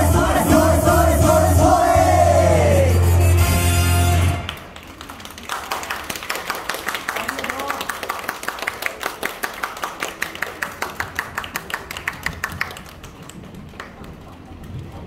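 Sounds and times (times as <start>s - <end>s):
audience clapping in rhythm: 0.0s - 2.9s, 4.3s - 14.8s
low room murmur: 9.4s - 15.0s.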